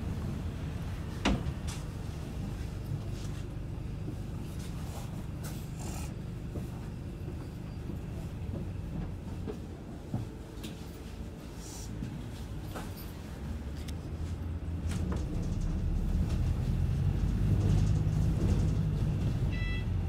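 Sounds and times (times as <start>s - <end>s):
low bus engine rumble: 0.0s - 20.0s
bodywork rattles and clicks: 14.8s - 19.4s.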